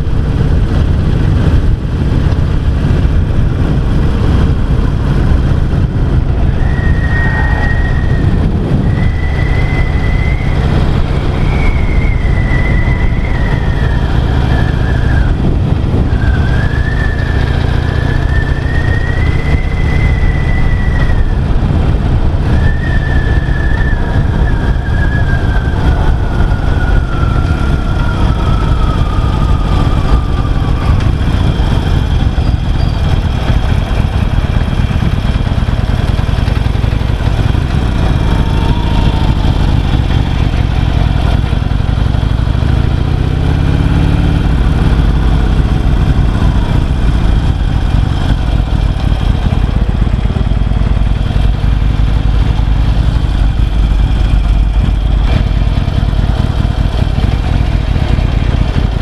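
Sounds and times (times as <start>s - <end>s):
motorcycle engine running: 0.0s - 59.0s
wind rush on microphone: 0.0s - 59.0s.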